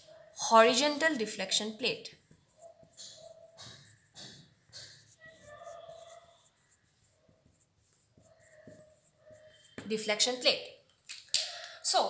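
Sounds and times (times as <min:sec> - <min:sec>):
felt-tip marker scratching: 0:02.1 - 0:10.4
marker squeak: 0:02.4 - 0:10.1.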